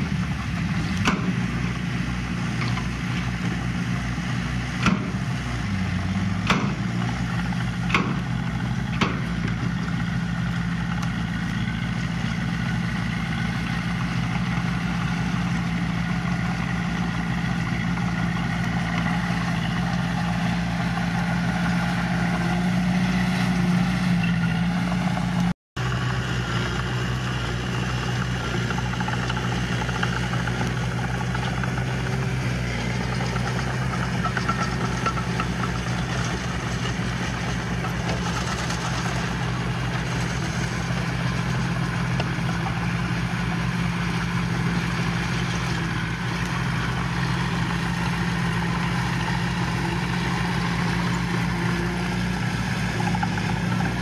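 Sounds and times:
diesel engine running: 0:00.0 - 0:54.0
sharp knocks: 0:04.8 - 0:05.2, 0:06.4 - 0:06.9, 0:07.8 - 0:08.2, 0:08.9 - 0:09.4.

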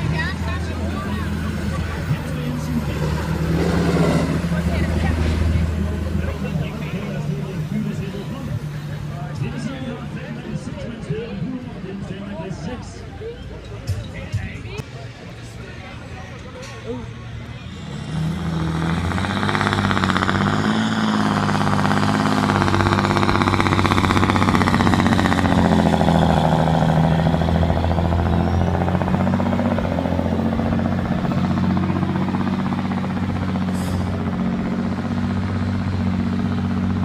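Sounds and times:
tractor diesel engine at full load: 0:00.0 - 0:13.6, 0:14.4 - 0:37.0.

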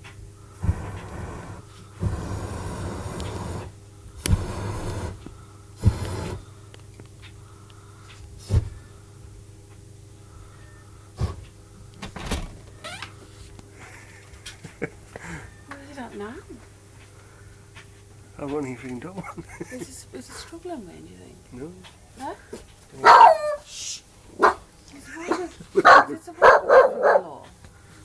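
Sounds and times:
propane burner blasts: 0:00.0 - 0:09.5, 0:10.2 - 0:20.8.

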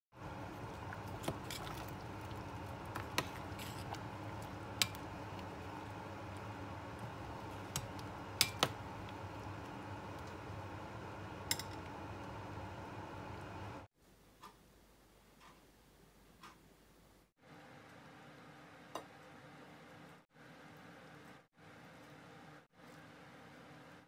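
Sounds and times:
steady low hum: 0:00.2 - 0:13.9.

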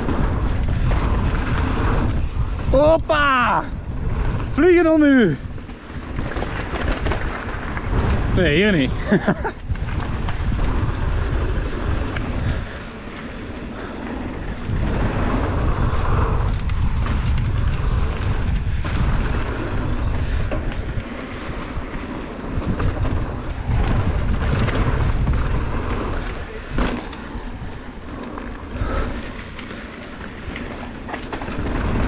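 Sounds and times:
tyres rolling over dirt: 0:00.0 - 0:32.0
wind buffeting microphone: 0:00.0 - 0:32.0
bike knocks and rattles: 0:05.5 - 0:32.0.

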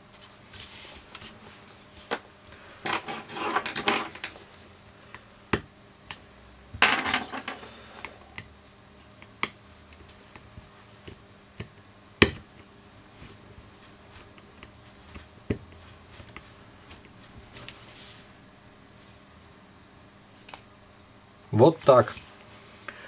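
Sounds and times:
plastic housing scraping and rattling: 0:02.9 - 0:04.4.

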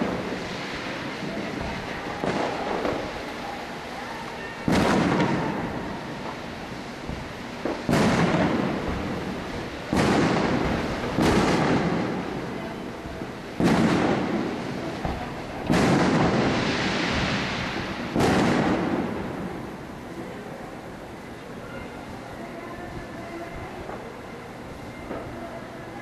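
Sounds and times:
firework booms with echoing rumble: 0:00.0 - 0:03.8, 0:04.6 - 0:20.1.

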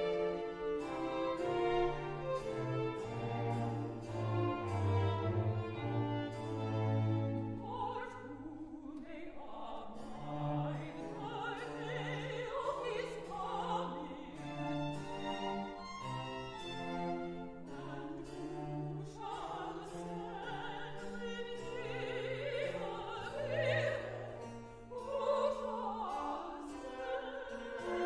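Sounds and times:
string orchestra chords: 0:00.0 - 0:08.8, 0:09.5 - 0:28.0
woman singing with vibrato: 0:07.5 - 0:14.8, 0:17.8 - 0:28.0.

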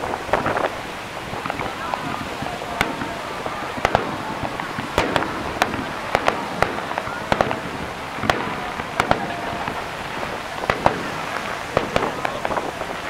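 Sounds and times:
crackling hiss: 0:00.0 - 0:13.0
fireworks bursting with bangs: 0:00.0 - 0:13.0.

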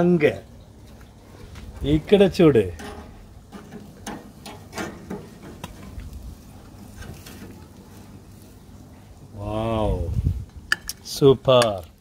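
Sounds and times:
metal tongs clicking on grill: 0:02.8 - 0:05.8, 0:10.7 - 0:12.0.

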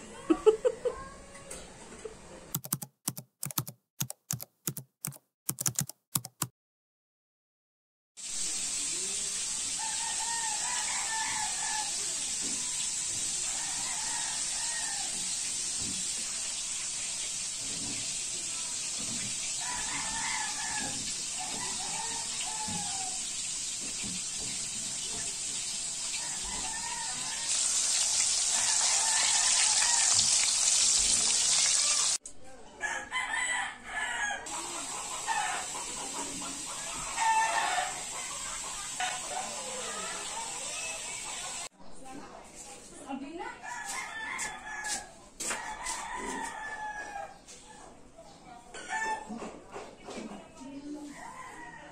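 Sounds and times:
roosters crowing: 0:09.8 - 0:15.6, 0:19.5 - 0:23.4, 0:26.0 - 0:32.2, 0:32.8 - 0:41.7, 0:43.6 - 0:47.4, 0:51.1 - 0:51.9
chickens clucking: 0:34.4 - 0:42.0.

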